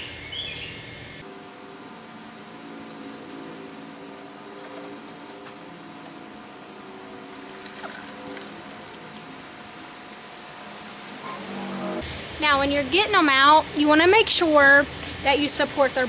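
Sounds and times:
outdoor background hum: 0:00.0 - 0:16.0
bird chirp: 0:02.8 - 0:04.4.

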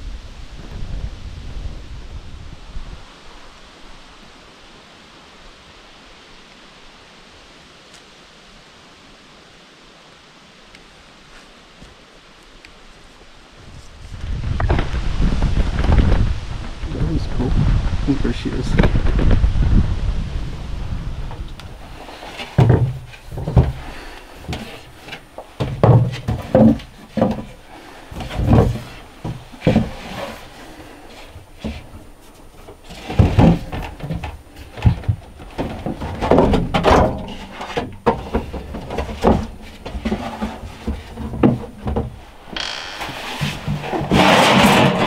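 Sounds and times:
produce thudding on wooden shelves: 0:22.4 - 0:30.5, 0:32.6 - 0:42.2, 0:43.0 - 0:45.0.

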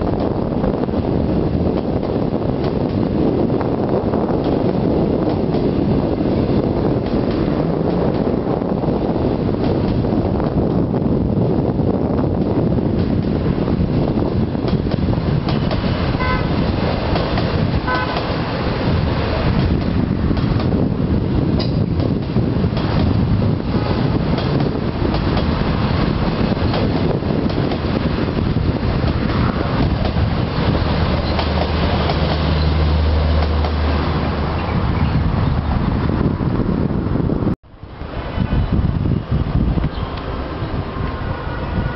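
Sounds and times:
train coaches rolling past: 0:00.0 - 0:41.9
short high train horn: 0:16.1 - 0:16.6, 0:17.8 - 0:18.4, 0:41.1 - 0:41.9.

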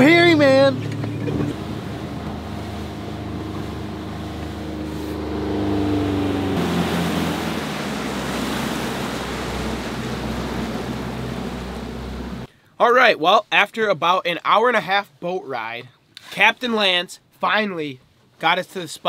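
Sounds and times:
churning wake and wind: 0:00.0 - 0:12.5
outboard motor droning: 0:00.0 - 0:12.5.

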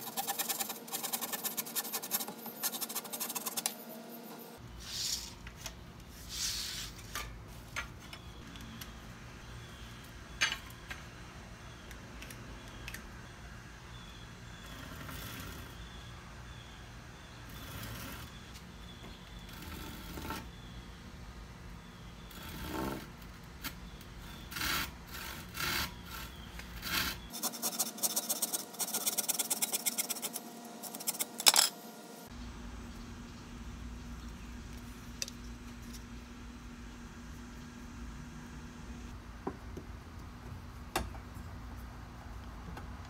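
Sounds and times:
hand saw cutting board: 0:00.0 - 0:03.7, 0:24.5 - 0:31.4.

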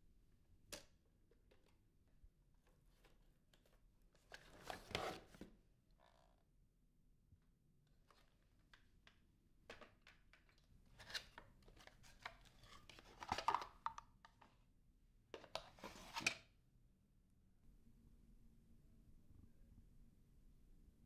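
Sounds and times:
cardboard rustling and scraping: 0:04.4 - 0:05.5, 0:15.7 - 0:16.3.

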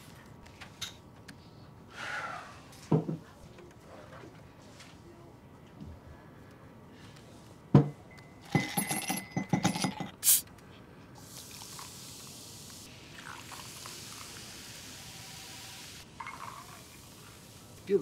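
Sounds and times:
mugs knocking on wooden table: 0:07.7 - 0:08.0
ceramic mugs clinking: 0:08.4 - 0:10.2, 0:16.2 - 0:16.7
soda pouring and fizzing: 0:11.2 - 0:17.9.

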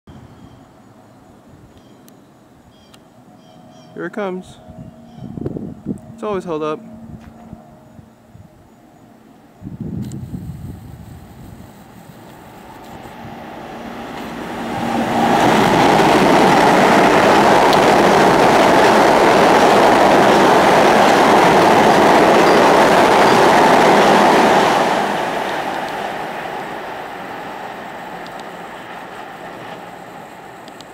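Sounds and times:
train wheels rushing on rails: 0:10.0 - 0:30.9.

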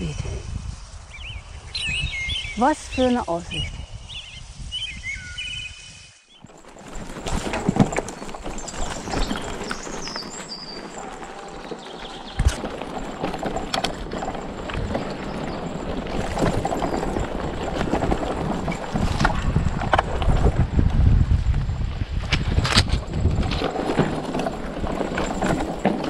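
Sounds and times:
bike frame clattering: 0:06.4 - 0:20.1
tyres crunching over soil: 0:06.4 - 0:21.4, 0:22.2 - 0:26.0.

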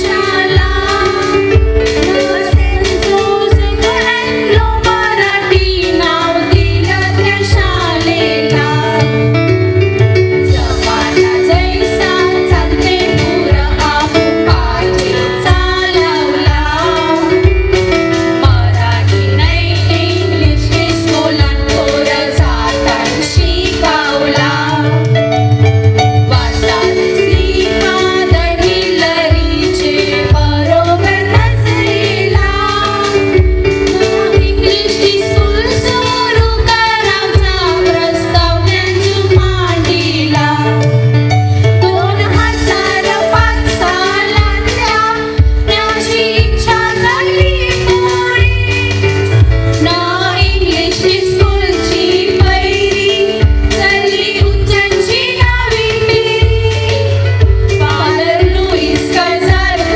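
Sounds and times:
amplified accompaniment with beat: 0:00.0 - 0:59.9
women's chorus singing: 0:18.5 - 0:24.8, 0:26.3 - 0:33.3.

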